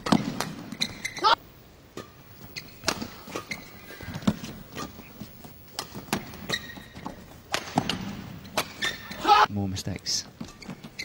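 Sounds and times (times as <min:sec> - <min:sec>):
shoe squeaks: 0:00.7 - 0:01.4, 0:02.4 - 0:05.3, 0:06.3 - 0:07.3, 0:08.6 - 0:09.3, 0:10.4 - 0:11.0.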